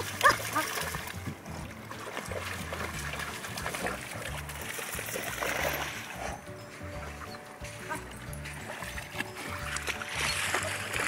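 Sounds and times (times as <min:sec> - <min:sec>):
dogs splashing through water: 0:00.0 - 0:11.0.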